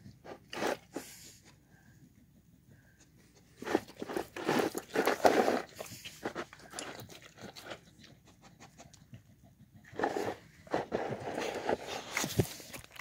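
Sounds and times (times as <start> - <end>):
dog crunching and chewing food: 3.6 - 13.0.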